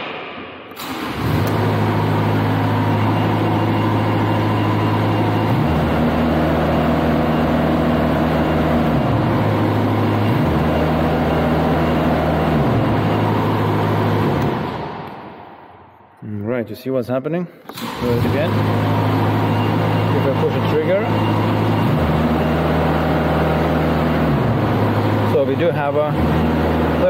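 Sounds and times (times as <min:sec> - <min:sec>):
diesel engine revving: 0:00.7 - 0:15.5, 0:17.7 - 0:27.0.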